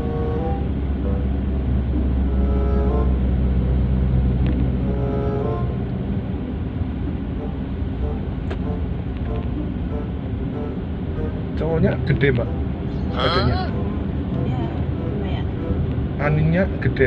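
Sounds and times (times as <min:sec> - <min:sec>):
car road and engine noise: 0:00.0 - 0:17.0.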